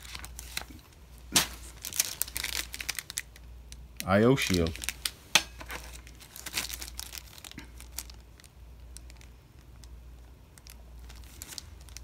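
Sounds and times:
plastic bag crinkling: 0.0 - 3.4, 4.3 - 12.0.

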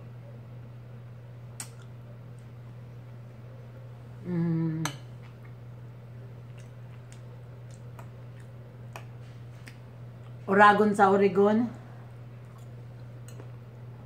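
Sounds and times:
steady low hum: 0.0 - 14.0
person humming: 4.2 - 5.0.

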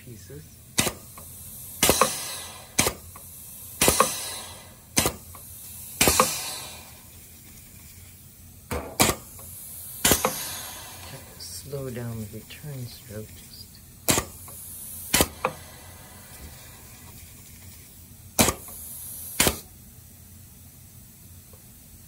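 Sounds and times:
air exhaust hiss: 0.0 - 22.0
pneumatic cylinder clacks: 0.8 - 8.0, 8.7 - 11.3, 14.0 - 19.7.

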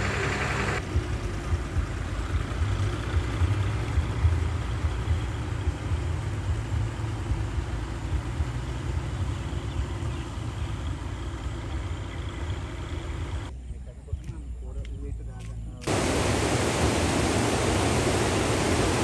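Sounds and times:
tractor diesel engine rumbling: 0.0 - 13.5.

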